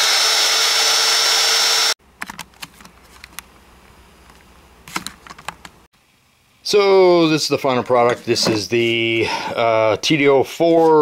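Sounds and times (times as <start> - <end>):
die grinder grinding metal: 0.0 - 2.0.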